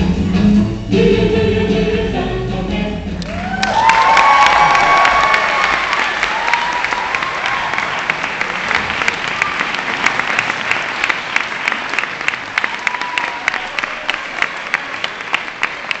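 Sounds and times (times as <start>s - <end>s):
audience applauding: 3.2s - 16.0s.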